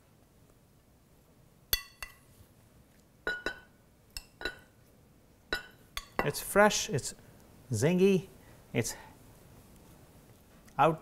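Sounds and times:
metal spoon clinking on ceramic bowl: 0:01.7 - 0:02.2, 0:03.2 - 0:04.7, 0:05.5 - 0:06.4.

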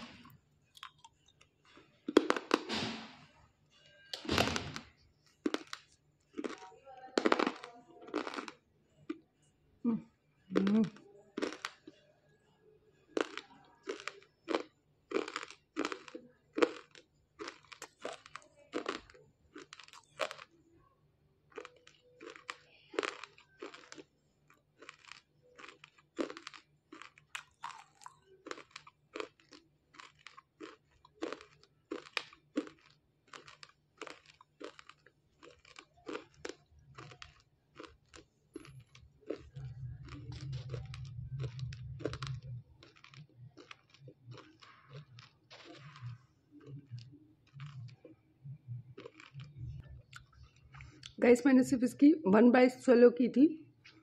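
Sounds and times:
crunchy chewing: 0:00.0 - 0:03.2, 0:04.2 - 0:09.3, 0:10.5 - 0:12.1, 0:13.0 - 0:20.6, 0:21.5 - 0:51.2
low hum: 0:38.5 - 0:52.2.

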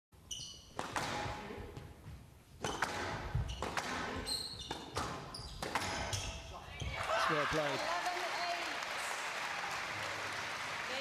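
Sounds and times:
shoes squeaking on court floor: 0:00.2 - 0:07.0
squash ball hits: 0:00.8 - 0:01.4, 0:02.6 - 0:06.1.

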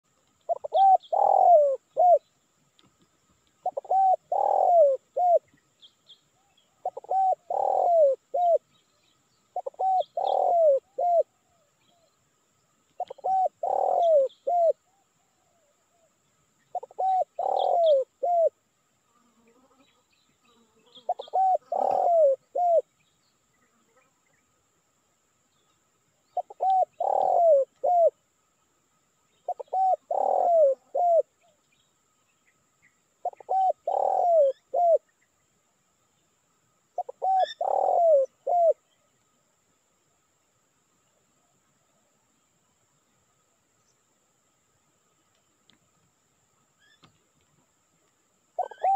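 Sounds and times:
small birds chirping: 0:00.2 - 0:15.7, 0:16.3 - 0:18.5, 0:19.4 - 0:24.6, 0:25.4 - 0:36.4, 0:37.0 - 0:39.4, 0:46.8 - 0:48.9
dove cooing: 0:00.5 - 0:02.3, 0:03.6 - 0:05.5, 0:06.8 - 0:08.6, 0:09.5 - 0:11.7, 0:13.0 - 0:16.1, 0:16.7 - 0:18.6, 0:21.0 - 0:22.9, 0:26.4 - 0:28.2, 0:29.5 - 0:31.3, 0:33.2 - 0:35.0, 0:37.0 - 0:38.8, 0:48.6 - 0:48.9.

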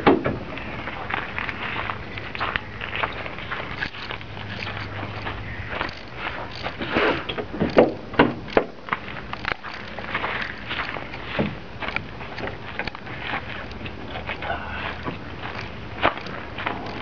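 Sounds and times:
footsteps on pavement: 0:00.5 - 0:08.0, 0:08.7 - 0:17.0
sharp knocks and clatters: 0:03.8 - 0:13.9.

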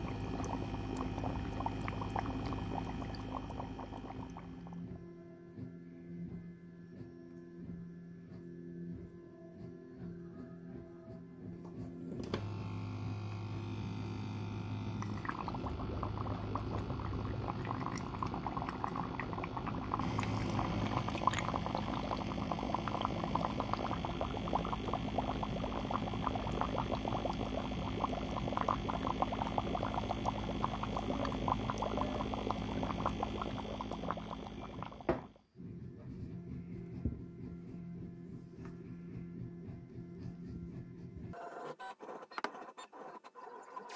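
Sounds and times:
water churning and bubbling: 0:00.0 - 0:04.8, 0:13.0 - 0:35.3
steady low hum: 0:00.0 - 0:09.2, 0:11.4 - 0:41.4.

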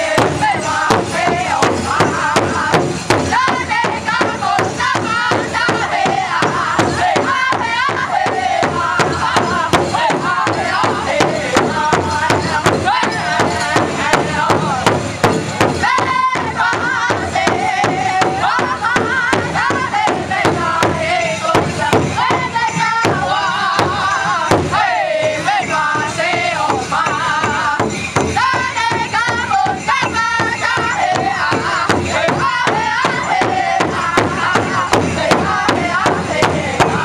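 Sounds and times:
large drum beating: 0:00.0 - 0:37.0
voices singing together: 0:00.0 - 0:37.0.

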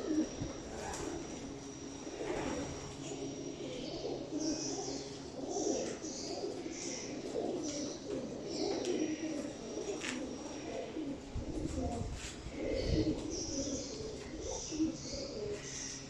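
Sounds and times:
pigeons cooing: 0:00.0 - 0:16.0.

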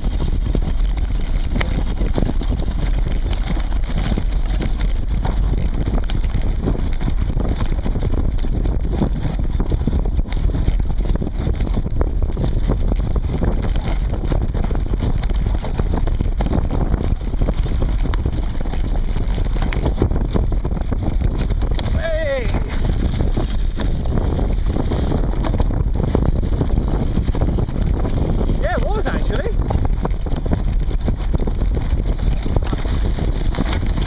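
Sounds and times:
bike knocks and rattles: 0:00.0 - 0:34.0
tyre rumble on dirt: 0:00.0 - 0:34.0
wind noise on microphone: 0:00.0 - 0:34.0.

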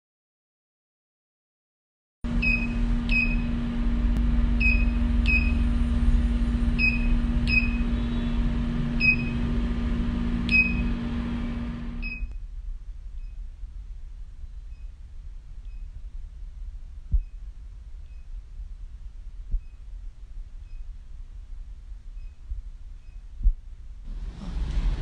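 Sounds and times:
steady low hum: 0:02.3 - 0:25.0
short high beeps: 0:06.8 - 0:07.8, 0:10.5 - 0:10.9, 0:12.0 - 0:12.3.

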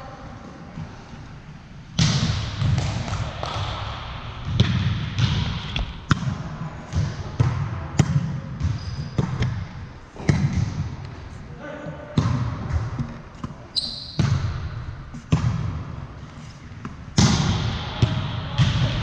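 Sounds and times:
volleyball smacks echoing: 0:02.0 - 0:11.1, 0:12.2 - 0:15.9, 0:16.8 - 0:19.0.

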